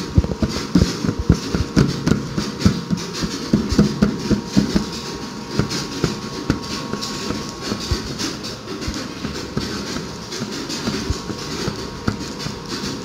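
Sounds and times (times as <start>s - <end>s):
dough patted on metal tray: 0.0s - 13.0s.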